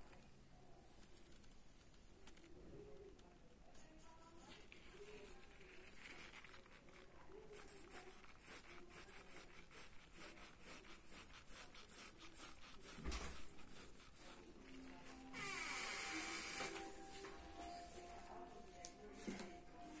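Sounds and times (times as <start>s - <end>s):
pencil scratching on paper: 3.8s - 15.3s.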